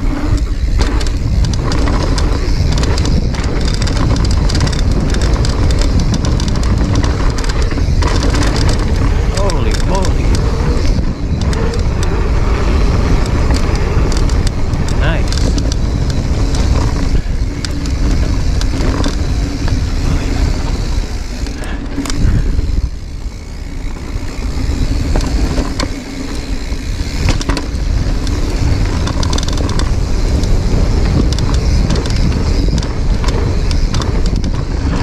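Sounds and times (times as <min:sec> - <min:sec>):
bike frame and chain rattling: 0:00.0 - 0:35.0
bike tyres rolling on dirt: 0:00.0 - 0:35.0
wind rumble on microphone: 0:00.0 - 0:35.0.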